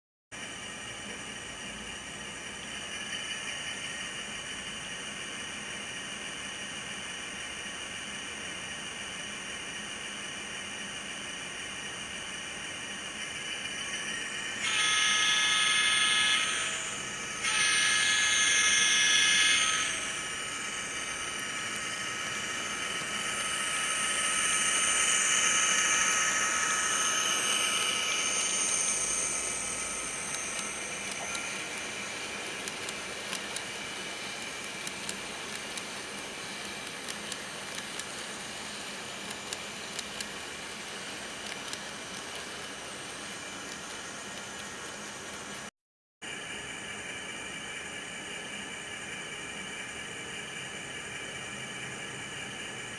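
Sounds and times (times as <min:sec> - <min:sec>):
model train wheels clicking on track: 0:00.4 - 0:42.7
model engine sound: 0:00.4 - 0:43.1
model locomotive horn from small speaker: 0:14.6 - 0:20.8.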